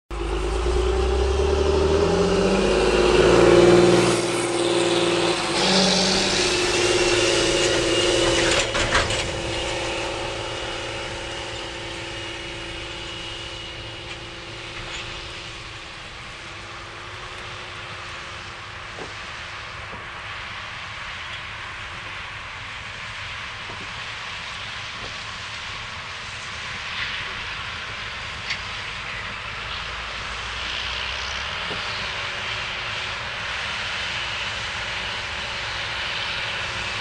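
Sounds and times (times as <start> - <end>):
tractor engine passing: 0.1 - 37.0.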